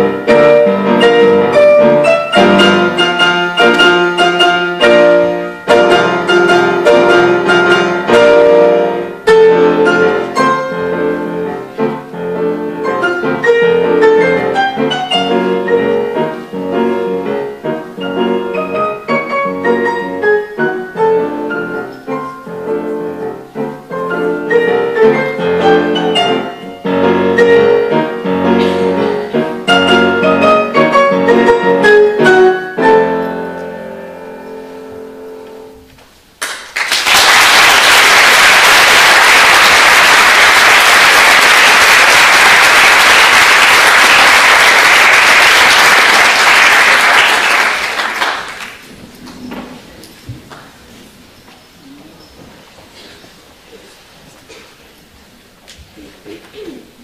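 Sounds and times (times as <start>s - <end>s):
piano piece: 0.0s - 57.0s
audience applause: 36.4s - 48.9s.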